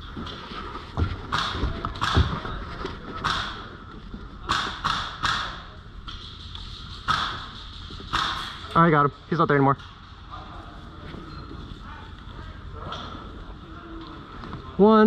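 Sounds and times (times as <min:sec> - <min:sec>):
airsoft rifle shots: 0:03.2 - 0:03.7, 0:04.4 - 0:05.7, 0:07.0 - 0:08.6.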